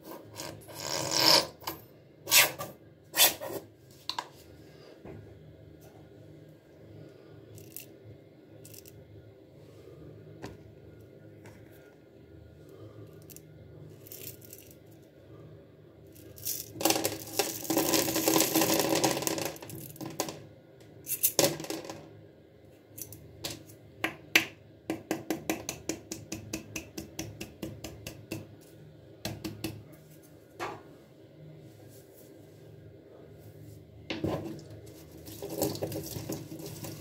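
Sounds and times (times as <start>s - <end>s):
plastic beads pattering into tub: 16.4s - 20.4s, 35.1s - 37.0s.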